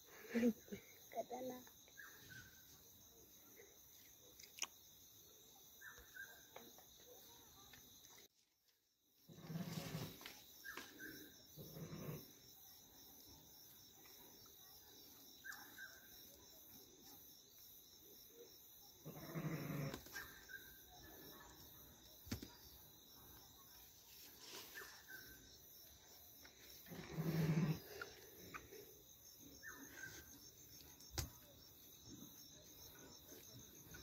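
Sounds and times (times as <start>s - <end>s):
crickets chirring: 0.0s - 34.0s
ram bleating: 19.1s - 20.0s.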